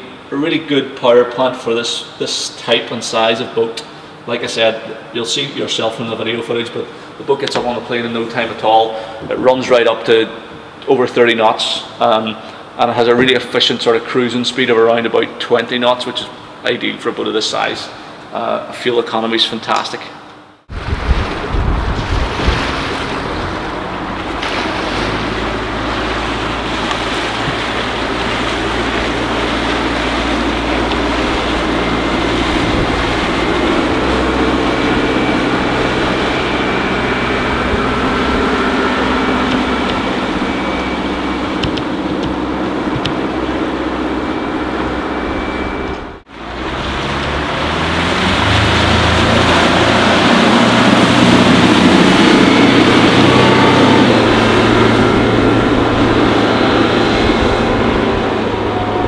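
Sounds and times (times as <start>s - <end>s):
wind buffeting microphone: 20.7s - 44.7s
boat diesel engine running: 20.7s - 59.0s
water rushing off hull: 20.7s - 59.0s.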